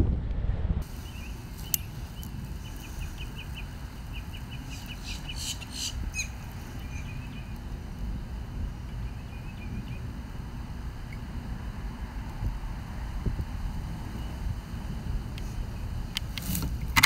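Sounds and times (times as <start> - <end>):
steady low rumble: 0.0 - 17.0
birds chirping: 0.8 - 11.4.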